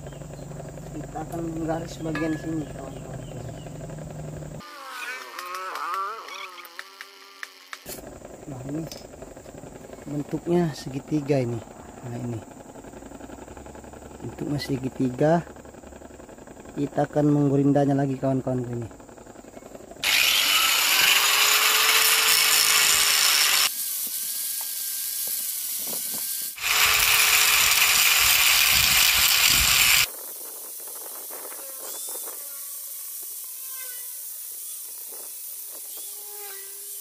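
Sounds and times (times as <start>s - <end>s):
angle grinder grinding metal: 0.0s - 12.7s, 19.4s - 30.1s.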